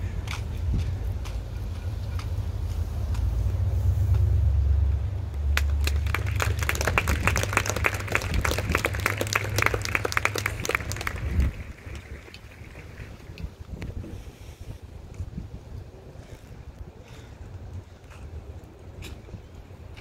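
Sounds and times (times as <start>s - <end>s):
wind rumble on microphone: 0.0s - 20.0s
audience applauding: 5.5s - 13.2s.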